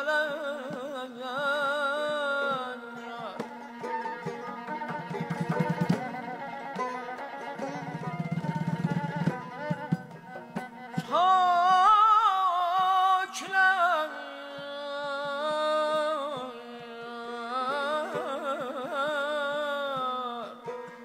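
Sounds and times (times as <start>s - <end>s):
string instruments drone: 3.0s - 12.2s
man singing with trills: 11.0s - 20.8s.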